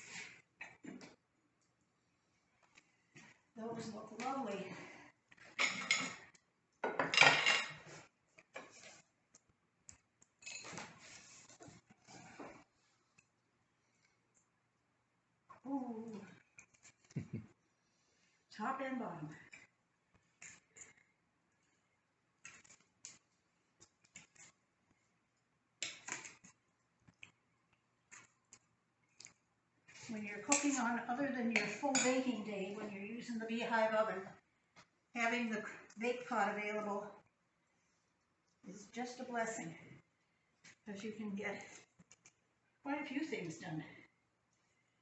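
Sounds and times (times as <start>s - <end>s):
metal kitchenware clattering: 5.6s - 6.2s, 6.8s - 7.9s.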